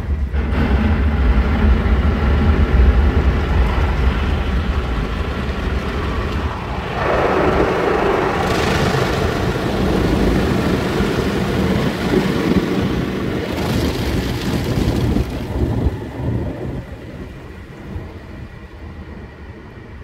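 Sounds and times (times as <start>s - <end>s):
water spraying on car: 5.0s - 16.3s.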